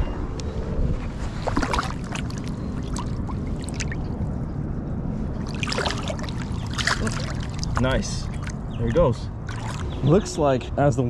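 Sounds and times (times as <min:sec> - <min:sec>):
water splashing and sloshing: 0:01.1 - 0:04.5, 0:05.1 - 0:10.3.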